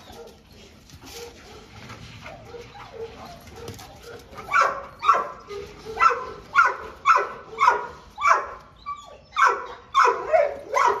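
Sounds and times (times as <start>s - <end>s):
dog barking: 2.5s - 8.6s, 9.4s - 11.0s.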